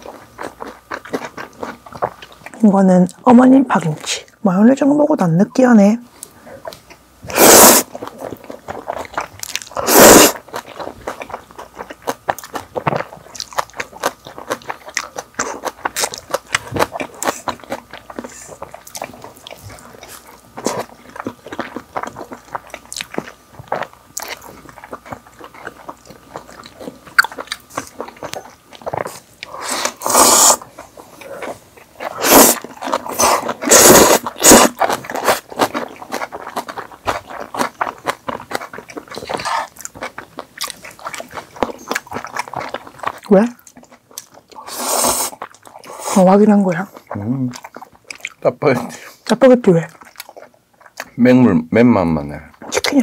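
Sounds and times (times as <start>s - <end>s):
people chewing crunchy chicken: 0.0s - 3.2s, 6.2s - 53.0s
noodle slurps: 7.3s - 8.0s, 9.8s - 10.4s, 29.1s - 30.7s, 31.4s - 35.5s, 44.6s - 46.2s.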